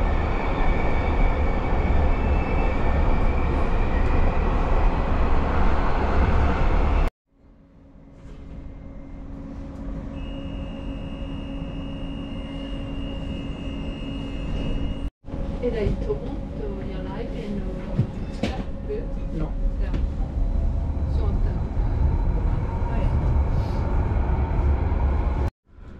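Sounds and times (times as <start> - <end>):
high whine: 7.8 - 15.7
tram wheels rumbling on track: 14.4 - 25.5.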